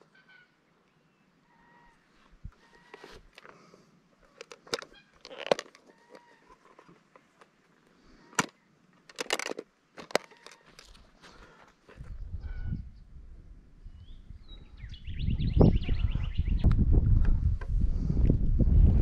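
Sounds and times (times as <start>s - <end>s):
faint high calls: 1.4s - 3.2s
sharp knocks and crunches: 9.1s - 11.1s.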